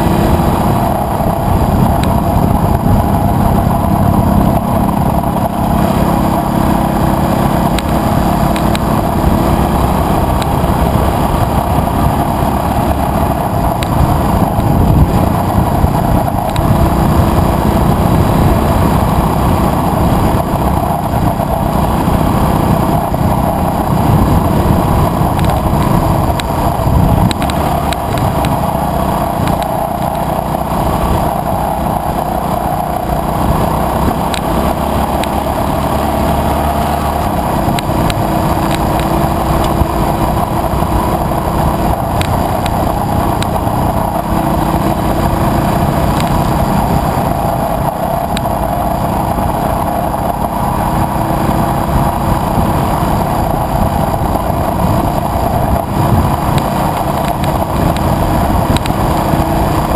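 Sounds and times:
motorcycle riding on gravel: 0.0 - 59.9
light ticks: 27.3 - 28.6, 42.2 - 42.8, 48.3 - 48.5, 58.7 - 59.0.

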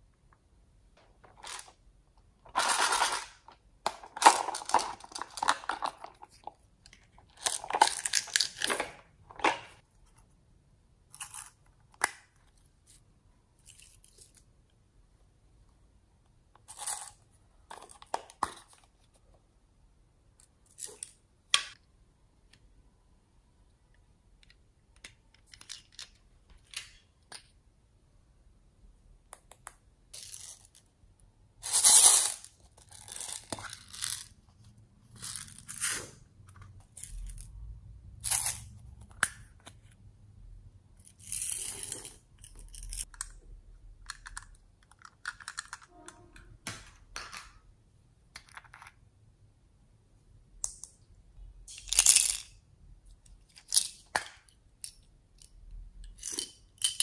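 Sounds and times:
plastic toys clicking and scraping: 2.4 - 9.8, 24.4 - 27.0, 31.6 - 34.4, 35.0 - 37.6, 38.2 - 40.0, 41.0 - 43.4, 44.0 - 45.9, 51.7 - 57.0.

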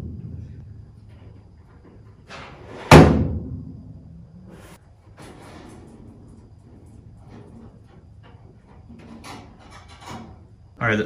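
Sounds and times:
loud sharp bang: 2.8 - 4.1.

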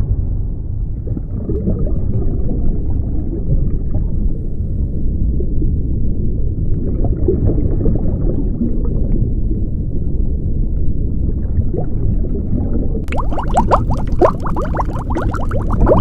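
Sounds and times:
muffled underwater rumble: 0.0 - 16.0
faint gurgles: 11.2 - 16.0.

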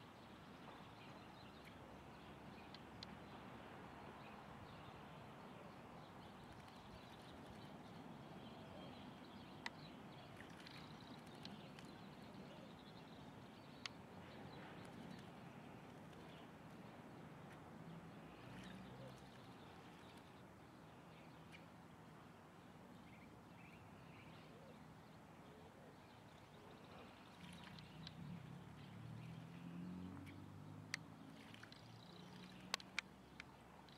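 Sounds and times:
soft clicks: 2.5 - 3.2, 9.4 - 12.4, 13.7 - 14.0, 27.6 - 28.2, 30.2 - 33.9
bird splashing in water: 27.2 - 28.6, 29.3 - 33.0.

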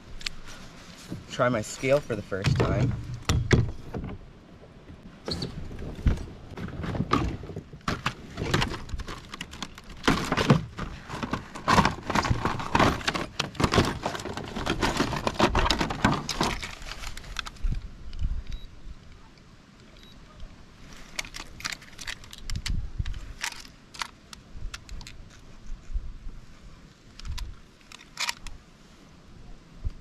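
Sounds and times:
plastic packaging clattering: 7.9 - 17.5.

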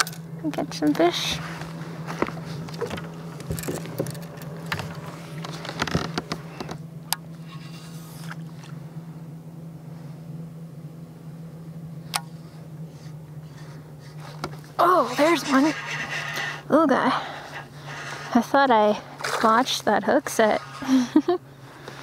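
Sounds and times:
steady low hum: 0.0 - 22.0
fishing tackle clicking and rattling: 3.4 - 4.8.

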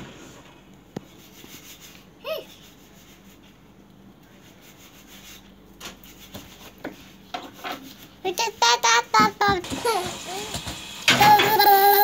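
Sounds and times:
young child vocalizing: 11.2 - 12.0.

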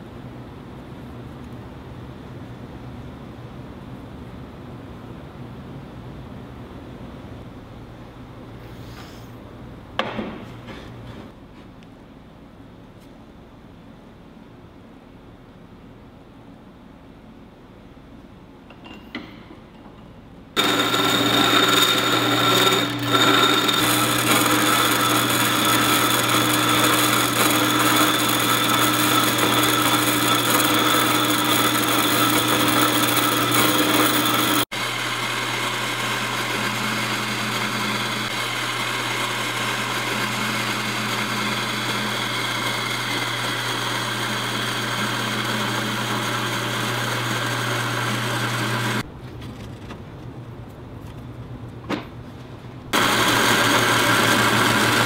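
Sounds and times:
bandsaw cutting steel tube: 20.6 - 49.0, 53.0 - 55.0.

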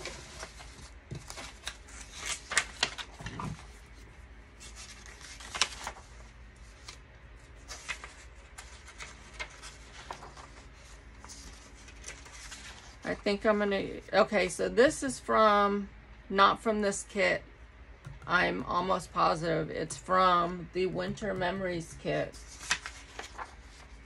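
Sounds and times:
paper pages rustling: 0.0 - 13.3, 22.3 - 24.0.

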